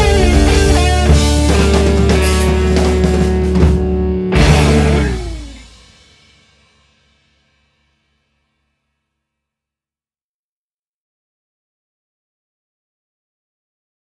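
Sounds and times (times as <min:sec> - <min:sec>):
rock music with guitar and drums: 0:00.0 - 0:06.2.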